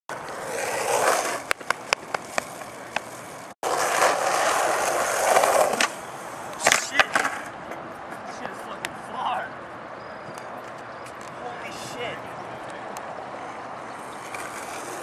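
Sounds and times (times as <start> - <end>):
skateboard clacks: 0.1 - 6.0, 6.6 - 8.9
skateboard wheels rolling on concrete: 0.1 - 15.0.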